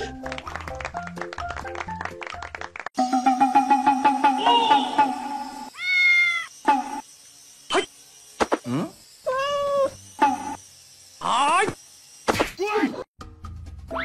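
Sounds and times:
kitten meowing: 5.8 - 6.5.

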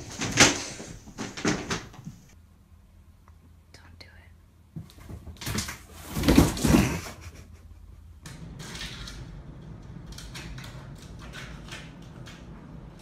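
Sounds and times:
low room noise: 0.0 - 13.0.

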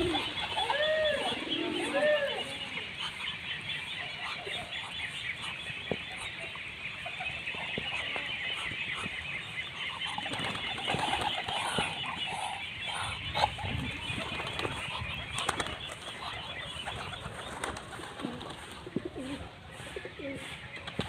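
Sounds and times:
bird call: 0.0 - 18.6
small bird sounds: 0.0 - 21.0
pigeons pecking on concrete: 17.3 - 21.0.

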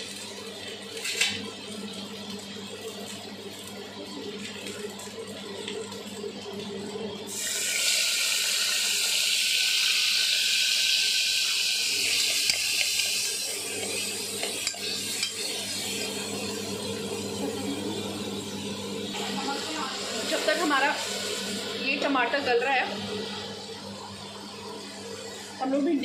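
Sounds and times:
vegetables sizzling in hot oil: 0.0 - 23.8.

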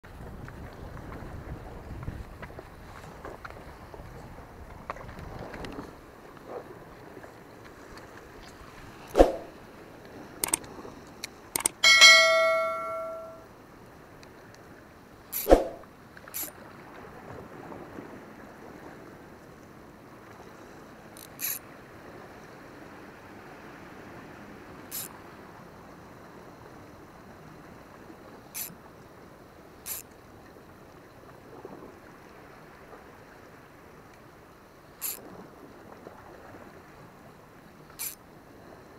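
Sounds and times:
bell ding: 11.8 - 13.4.

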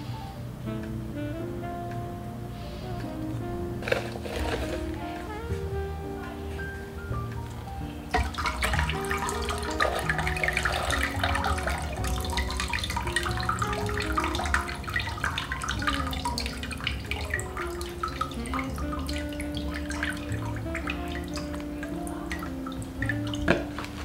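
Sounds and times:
water splashing and trickling: 3.8 - 6.3, 8.0 - 24.0
water dripping: 7.2 - 24.0.

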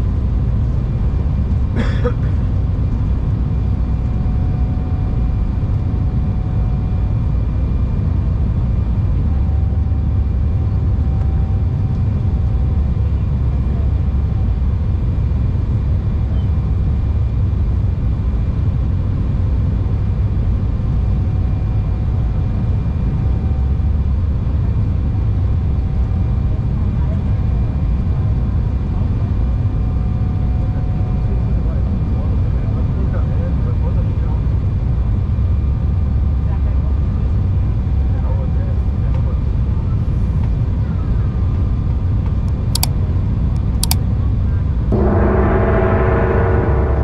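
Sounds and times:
jet engine rumble: 0.0 - 47.0
faint steady whine: 44.7 - 47.0.

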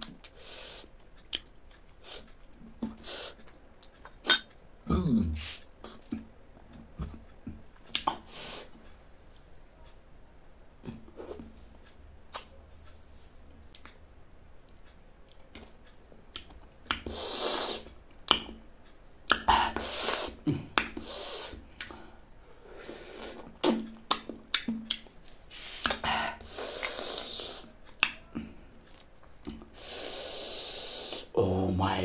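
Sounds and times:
wet lip smacks and clicks: 1.1 - 4.5, 5.8 - 8.3, 12.3 - 12.6, 16.3 - 18.6, 19.3 - 22.0, 23.4 - 25.1, 26.7 - 28.2
slurping and sucking fruit pulp: 16.9 - 17.9, 19.3 - 20.4, 22.7 - 23.9, 25.5 - 27.8, 29.8 - 31.3.

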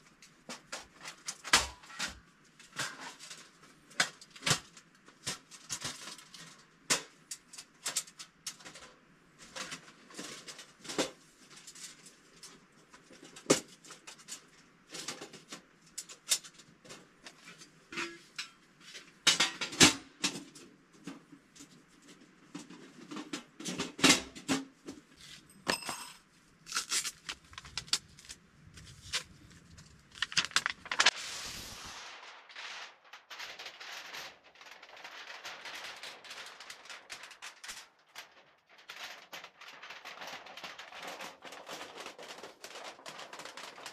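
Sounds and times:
scraping rustle: 26.6 - 43.9.

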